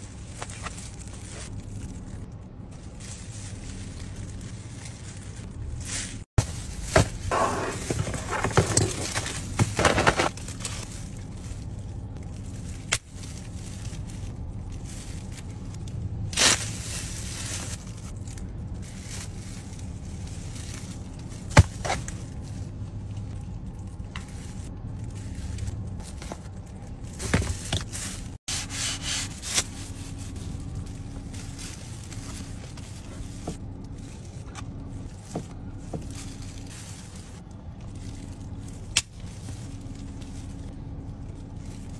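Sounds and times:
low car cabin hum: 0:00.0 - 0:28.5, 0:29.2 - 0:41.9
plastic gloves rustling: 0:00.0 - 0:41.9
plastic container crackling: 0:06.4 - 0:10.9.

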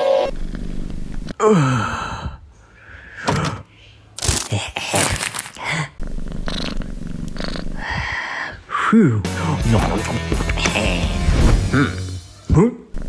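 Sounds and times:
cat purring: 0:00.3 - 0:01.3, 0:06.0 - 0:07.9
crinkling crackling bag: 0:04.2 - 0:05.8.

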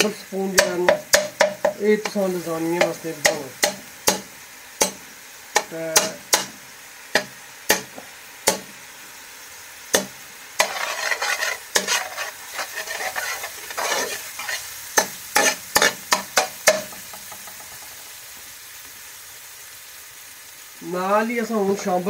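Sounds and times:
faint sizzle: 0:00.0 - 0:22.0
metal spoon scraping a pan: 0:09.9 - 0:17.8.

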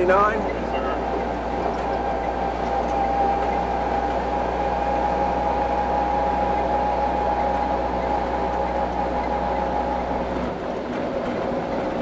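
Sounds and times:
jeep engine running: 0:00.0 - 0:12.0.

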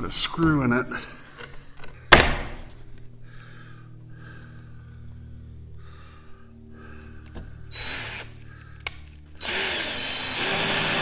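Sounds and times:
cordless drill whining: 0:07.2 - 0:11.0.

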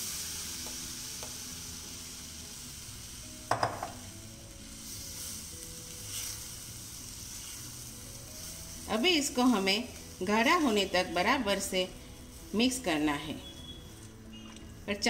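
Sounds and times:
batter sizzling in a pan: 0:00.0 - 0:15.0
spatula stirring: 0:05.0 - 0:10.9.

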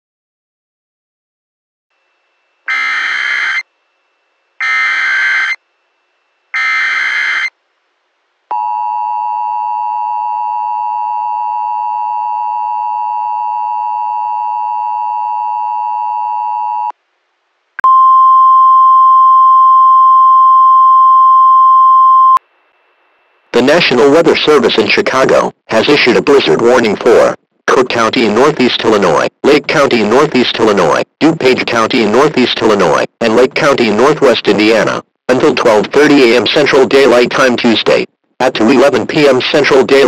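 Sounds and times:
steady warning alarm tone: 0:02.0 - 0:07.5.

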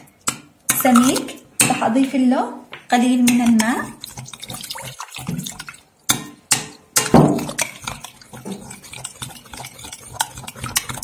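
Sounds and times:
spoon scraping glass bowl: 0:07.4 - 0:11.0.

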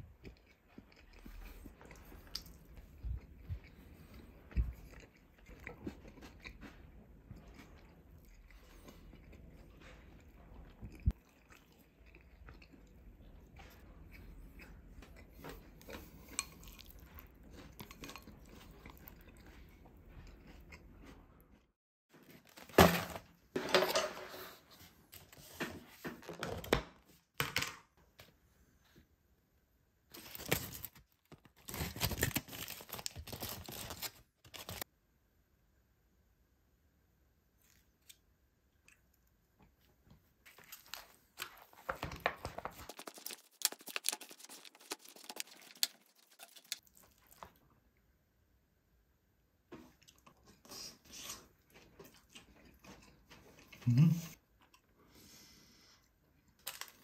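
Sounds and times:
close chewing and biting: 0:00.0 - 0:21.5, 0:40.5 - 0:47.6, 0:49.9 - 0:54.0.

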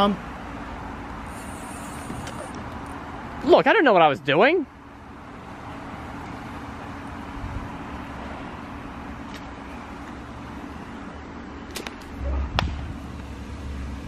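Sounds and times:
constant low hum: 0:00.0 - 0:14.0
hiss: 0:01.2 - 0:02.6
low bump on microphone: 0:12.3 - 0:13.0.

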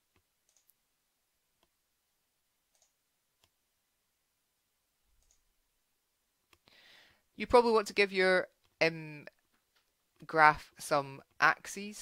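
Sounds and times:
faint computer mouse clicks: 0:02.7 - 0:03.6.

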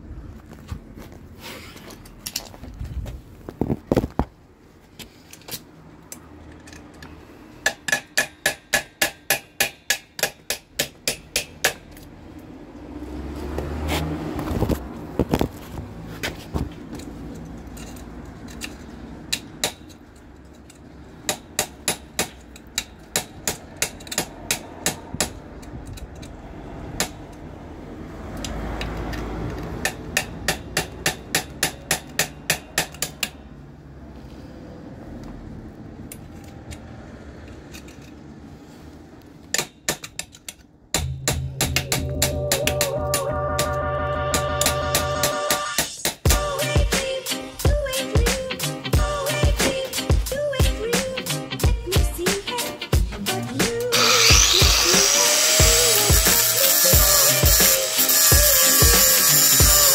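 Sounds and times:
hand tool striking steel frame: 0:07.6 - 0:12.1, 0:19.3 - 0:20.0, 0:21.2 - 0:26.1, 0:29.8 - 0:33.4, 0:39.5 - 0:43.0, 0:53.9 - 0:59.9
low rumble: 0:41.0 - 0:45.3.

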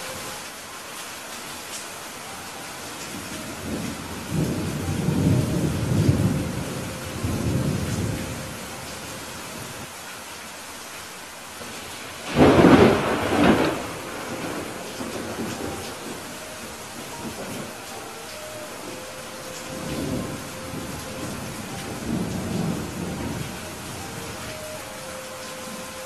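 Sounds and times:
steady rain: 0:00.0 - 0:26.0
low rolling thunder: 0:03.1 - 0:09.8, 0:11.6 - 0:25.0
loud sharp thunderclap: 0:12.3 - 0:16.1.

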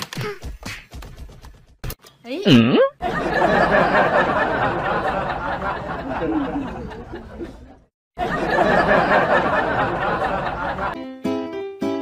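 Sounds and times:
people chattering and laughing: 0:03.0 - 0:11.0.

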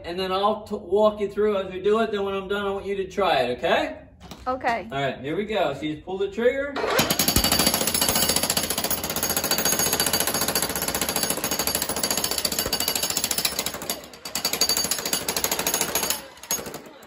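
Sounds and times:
jackhammer breaking concrete: 0:06.8 - 0:17.0.

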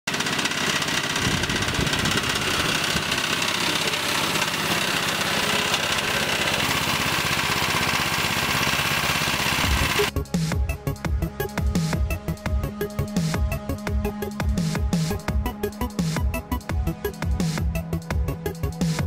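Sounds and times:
small engine idling: 0:00.1 - 0:10.2
music: 0:09.7 - 0:19.0.

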